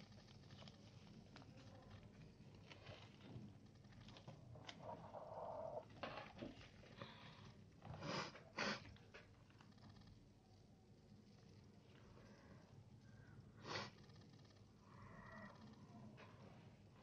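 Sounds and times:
paper rustling and crinkling: 0:00.0 - 0:05.1.

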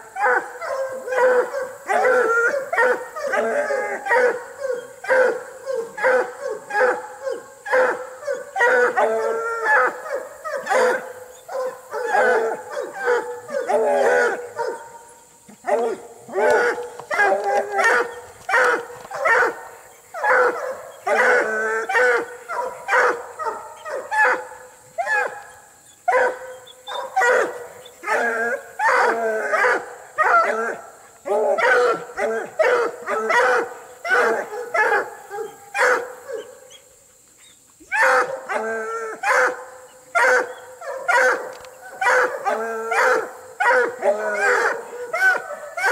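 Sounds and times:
dogs barking and baying: 0:00.0 - 0:45.9.

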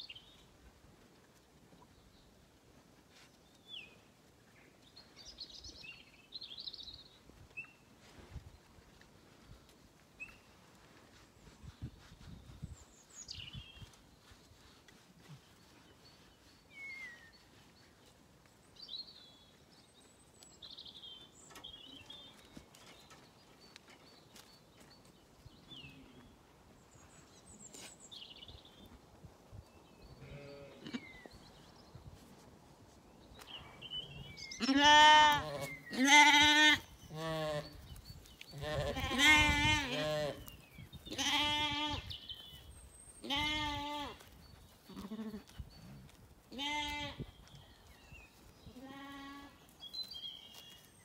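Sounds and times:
lambs bleating: 0:34.6 - 0:37.7, 0:38.6 - 0:40.5, 0:41.1 - 0:42.1, 0:43.2 - 0:44.2, 0:46.5 - 0:47.2.

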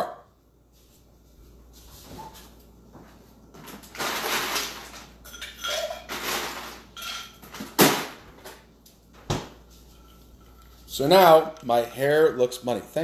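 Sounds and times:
ice clattering and scraping: 0:03.9 - 0:05.0.

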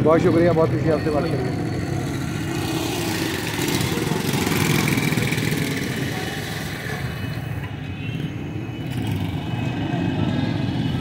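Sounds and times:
street traffic: 0:00.0 - 0:11.0
motorcycle engine passing: 0:01.9 - 0:07.0.

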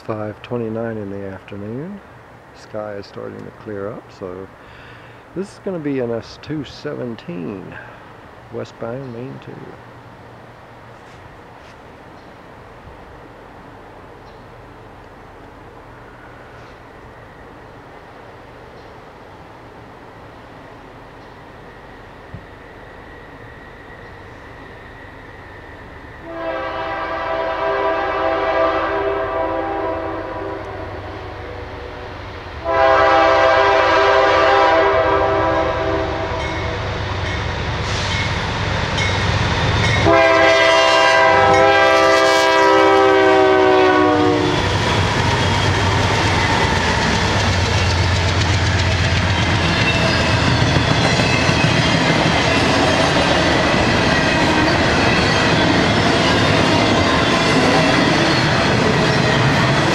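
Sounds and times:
train rumble: 0:00.0 - 0:59.9
locomotive air horn blasts: 0:26.2 - 0:36.8, 0:40.0 - 0:44.6
train wheels clickety-clack: 0:44.6 - 0:59.9.

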